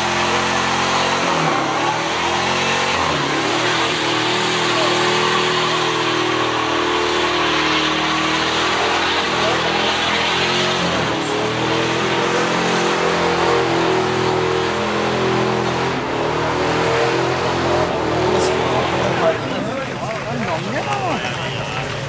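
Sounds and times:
car engine revving high: 0:00.0 - 0:21.1
tyres squealing on asphalt: 0:00.0 - 0:22.0.

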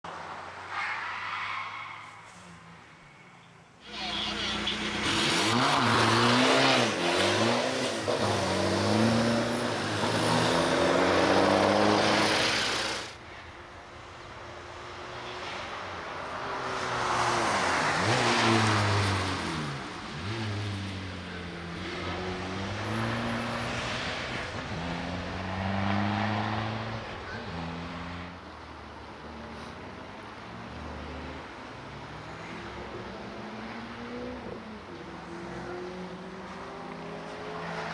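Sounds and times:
race car engine revving: 0:04.8 - 0:13.2.

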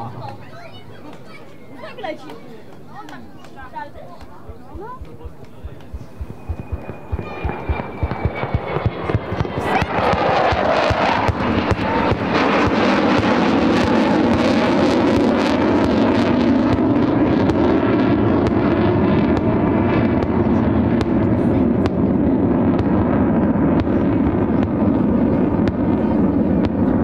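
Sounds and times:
jet engine roaring overhead: 0:04.7 - 0:27.0
sharp crackles: 0:05.0 - 0:18.8.

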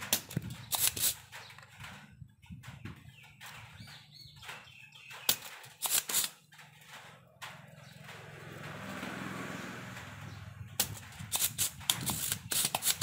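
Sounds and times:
desoldering pump snaps: 0:10.8 - 0:13.0.

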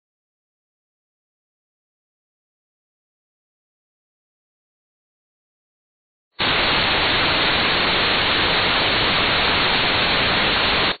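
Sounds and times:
television static hiss: 0:06.4 - 0:11.0.

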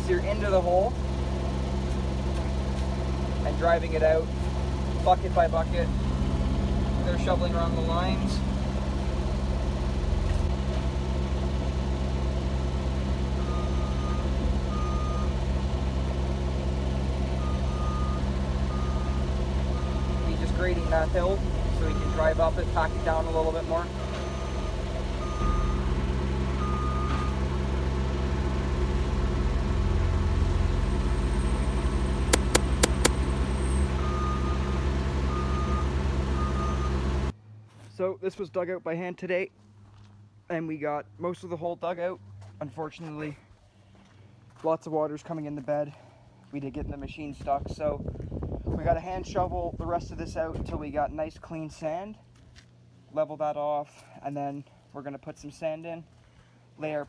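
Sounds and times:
diesel engines running: 0:00.0 - 0:38.6, 0:39.5 - 0:50.6, 0:54.0 - 0:57.0
reversing alarm beeps: 0:13.4 - 0:15.4, 0:17.4 - 0:19.2, 0:21.8 - 0:23.2, 0:24.0 - 0:25.8, 0:26.6 - 0:27.4, 0:34.0 - 0:37.0.

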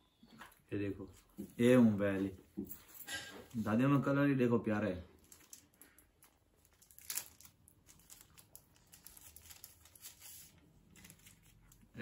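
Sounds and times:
packaging crinkling: 0:05.2 - 0:12.0.

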